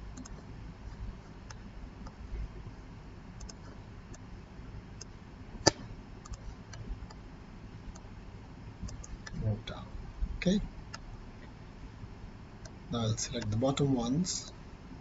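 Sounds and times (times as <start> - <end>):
faint low room hum: 0.0 - 15.0
computer mouse clicks: 0.2 - 0.4, 3.4 - 4.2, 5.0 - 7.2, 8.8 - 9.4.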